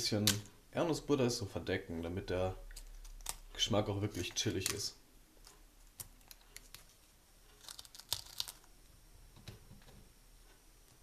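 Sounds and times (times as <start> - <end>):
chips crackling crumbled by hand: 7.6 - 8.7.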